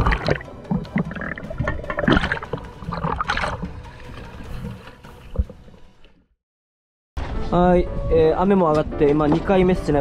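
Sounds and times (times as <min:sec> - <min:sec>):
sea water sloshing and gurgling: 0:00.0 - 0:05.8.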